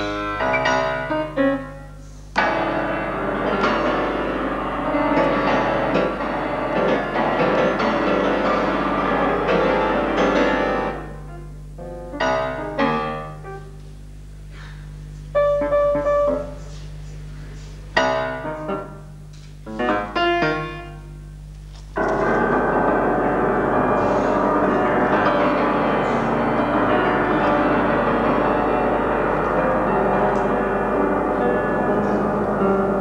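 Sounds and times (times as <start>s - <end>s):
solo grand piano: 0.0s - 33.0s
steady low hum: 0.0s - 33.0s.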